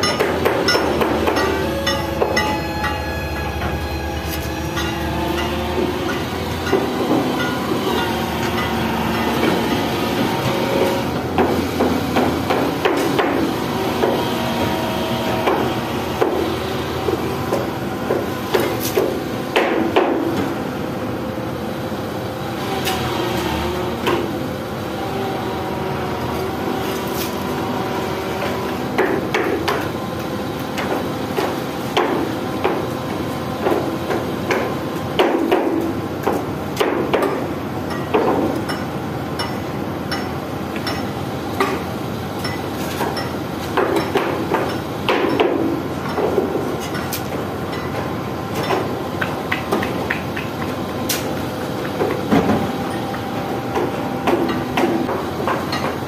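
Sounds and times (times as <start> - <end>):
hammer clanking on steel: 0.0 - 3.8
diesel engine running: 0.0 - 56.0.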